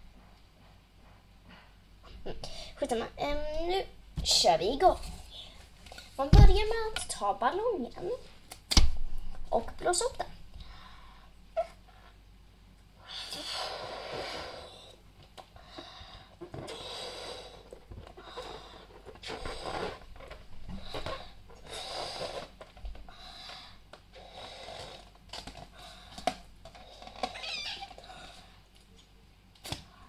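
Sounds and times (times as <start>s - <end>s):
person blowing up a balloon: 13.0s - 15.0s, 16.4s - 20.1s, 20.7s - 22.6s
balloon squeak: 19.2s - 20.1s, 27.1s - 28.0s.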